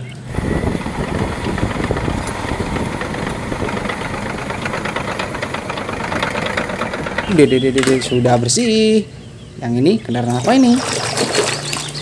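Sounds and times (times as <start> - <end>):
bulldozer diesel engine clattering: 0.0 - 9.5.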